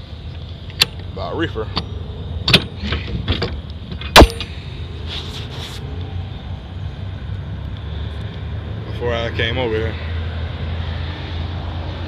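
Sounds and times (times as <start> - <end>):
loud metallic clank: 1.7 - 4.6.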